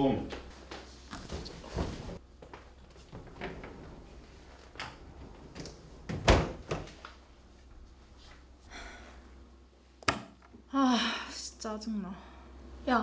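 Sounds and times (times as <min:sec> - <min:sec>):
wooden door opening and shutting: 0:02.9 - 0:07.1
door banging shut: 0:06.0 - 0:06.9.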